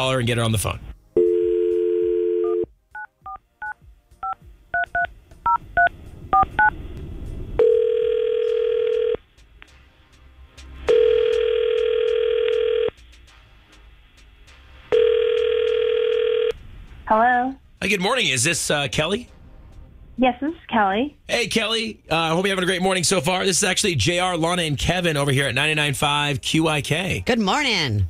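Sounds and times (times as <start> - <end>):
telephone ringback tone: 1.2 - 2.7, 7.6 - 9.2, 10.9 - 12.9, 14.9 - 16.5.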